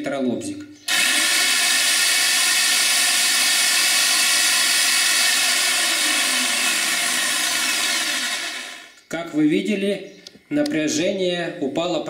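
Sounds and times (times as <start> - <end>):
electric jigsaw motor whine: 0.9 - 9.0.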